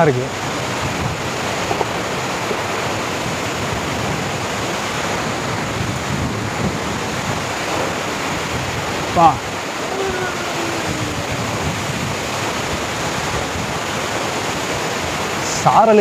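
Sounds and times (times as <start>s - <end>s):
waterfall roaring: 0.0s - 16.0s.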